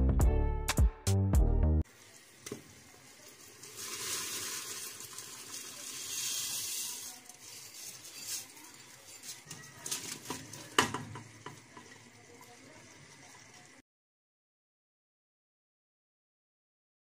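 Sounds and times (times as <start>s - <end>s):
dry lentils pouring into liquid: 1.9s - 13.8s.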